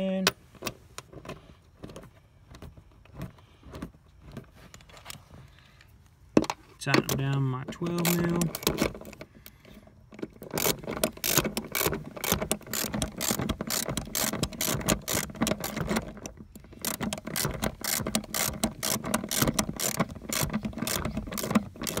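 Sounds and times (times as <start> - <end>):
ratchet wrench clicking: 7.8 - 9.2, 10.5 - 22.0.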